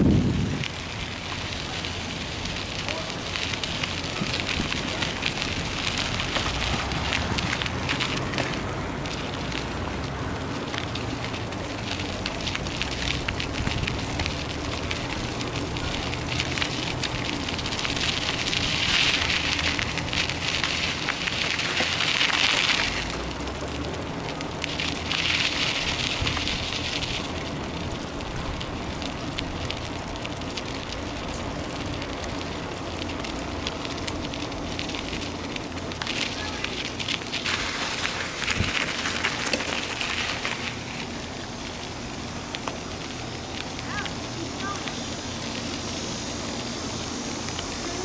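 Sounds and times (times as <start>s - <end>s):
wind on microphone: 0.0s - 1.0s
tyre noise on gravel road: 0.0s - 48.0s
high hissing buzz: 43.8s - 48.0s.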